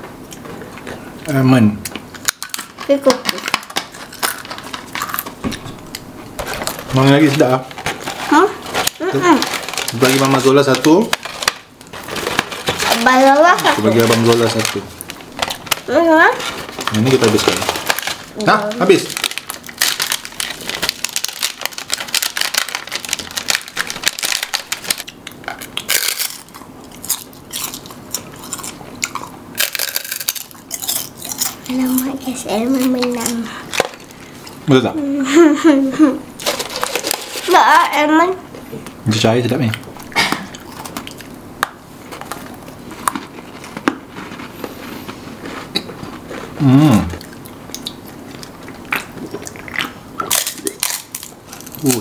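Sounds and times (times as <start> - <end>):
people eating snacks: 0.4 - 52.0
biscuit sticks crunching when chewed: 1.8 - 34.6, 39.6 - 52.0.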